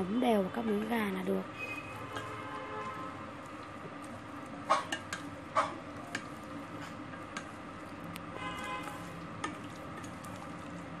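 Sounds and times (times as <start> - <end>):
chopsticks stirring in metal bowl: 0.6 - 11.0.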